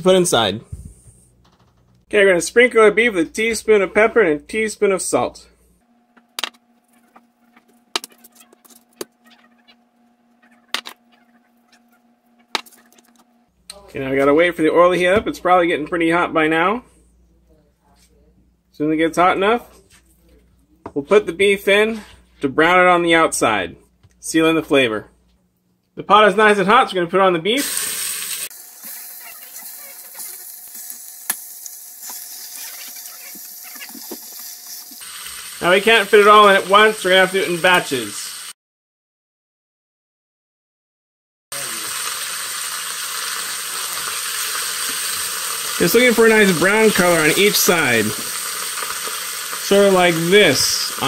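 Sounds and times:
meat sizzling in hot oil: 27.6s - 38.6s, 41.5s - 51.0s.

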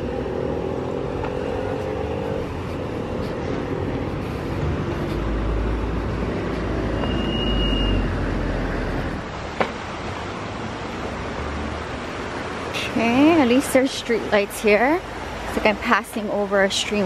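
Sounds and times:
cars driving by: 0.0s - 17.0s
thin high tone: 6.9s - 8.1s.

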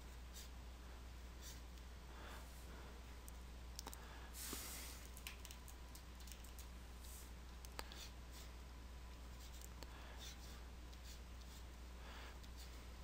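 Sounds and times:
steady hum: 0.0s - 13.0s
keyboard keys clicking: 5.0s - 6.7s.

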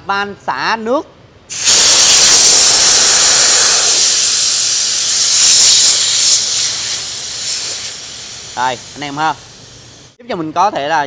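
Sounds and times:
compressed air hissing from valve: 1.5s - 10.2s.

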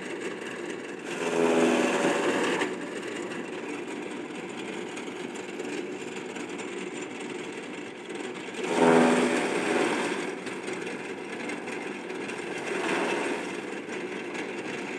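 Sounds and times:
chaff cutter chopping grass: 0.0s - 3.8s, 8.3s - 13.9s.

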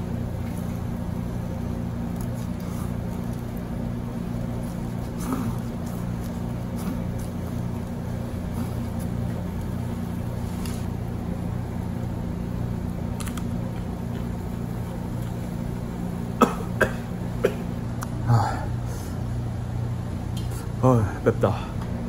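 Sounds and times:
low machine hum: 0.0s - 22.0s
chewing: 2.0s - 10.9s.

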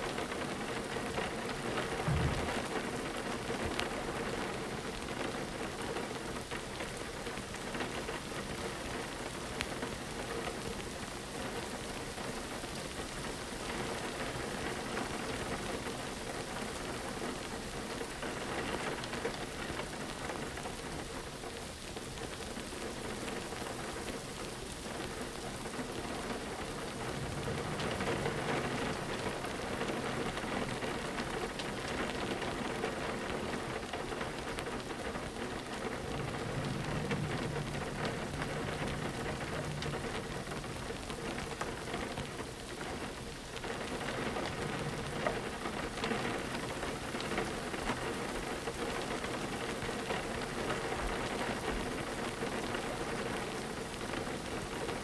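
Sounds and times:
rain pattering on a window: 0.0s - 55.0s
low rumble: 2.0s - 2.8s, 26.8s - 30.0s, 35.7s - 42.0s.

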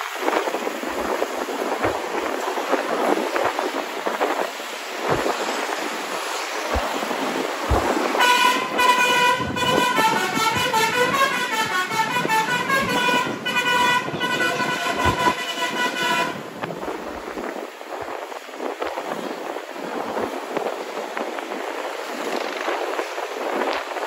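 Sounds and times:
road and wind noise: 0.0s - 24.0s
multi-tone bus horn melody: 8.1s - 16.6s.

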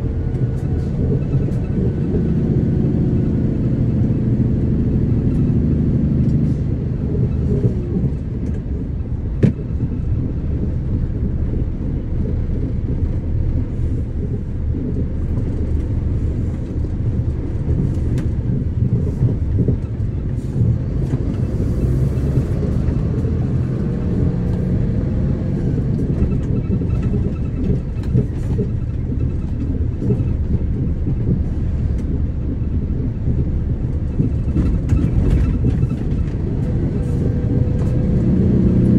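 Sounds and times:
car interior road rumble: 0.0s - 38.9s.

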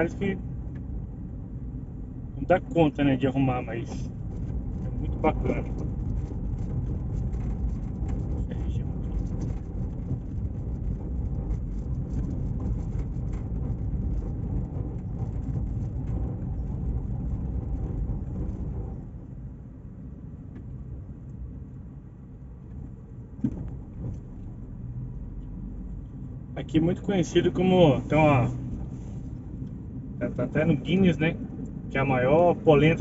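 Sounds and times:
car road noise from inside: 0.0s - 33.0s.

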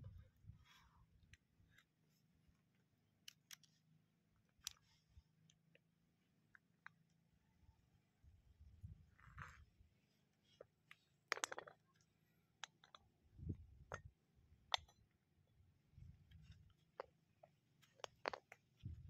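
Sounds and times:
hard objects clicking and knocking: 11.3s - 11.9s, 12.6s - 13.1s, 17.0s - 19.0s.

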